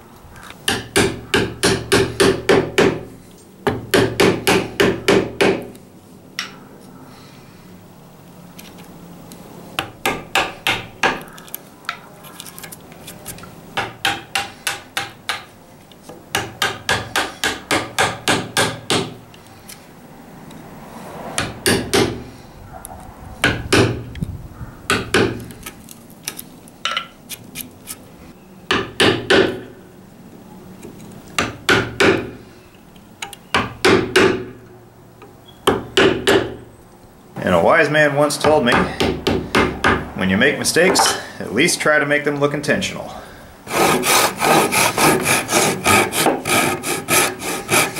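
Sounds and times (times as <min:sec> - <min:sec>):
hammer striking chisel: 0:00.7 - 0:03.0, 0:03.7 - 0:05.7, 0:09.8 - 0:11.2, 0:13.8 - 0:15.5, 0:16.3 - 0:19.2, 0:21.4 - 0:22.2, 0:24.9 - 0:25.4, 0:28.7 - 0:29.6, 0:31.4 - 0:32.4, 0:33.5 - 0:34.5, 0:35.6 - 0:36.6, 0:38.4 - 0:40.0.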